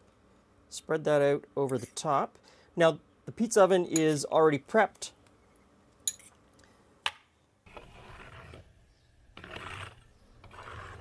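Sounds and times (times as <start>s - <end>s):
brush scraping brick oven floor: 7.7s - 8.7s, 9.4s - 11.0s.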